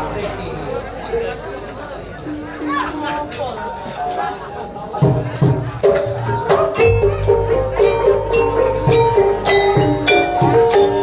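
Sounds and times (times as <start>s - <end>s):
struck ringing pitched notes: 6.8s - 11.0s.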